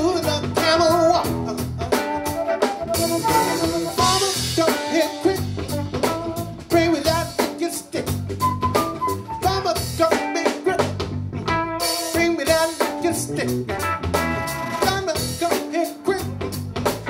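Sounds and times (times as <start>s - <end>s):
melodic lead line: 0.0s - 7.3s, 11.4s - 17.0s
drum kit beat: 0.0s - 17.0s
electric bass: 0.0s - 17.0s
electric guitar: 0.0s - 17.0s.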